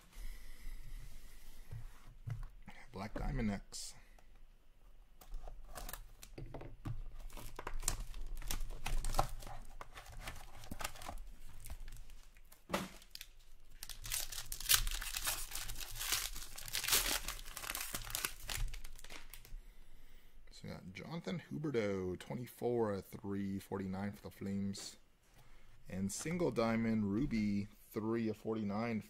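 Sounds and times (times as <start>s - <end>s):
foil wrapper tearing and crinkling: 13.0s - 19.5s.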